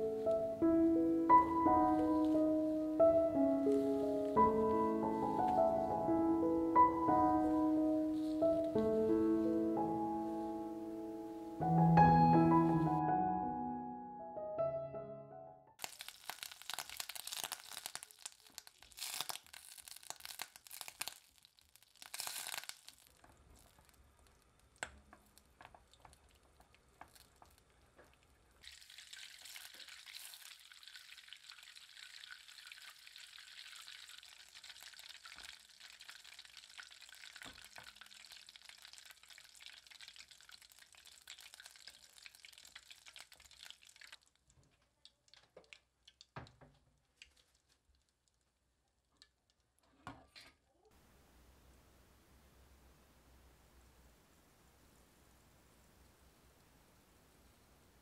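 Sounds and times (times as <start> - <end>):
butter sizzling: 15.8 - 46.4.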